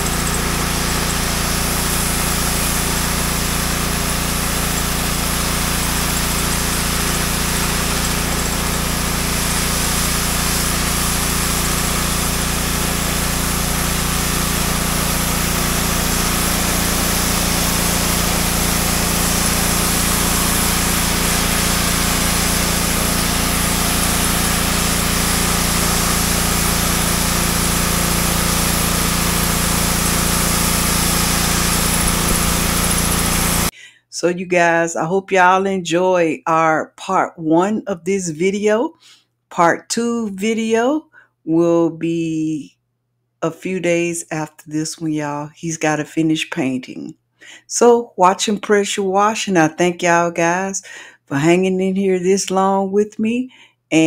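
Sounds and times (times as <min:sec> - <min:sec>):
pressure washer engine running: 0:00.0 - 0:33.8
water spray hissing on door: 0:00.0 - 0:33.8.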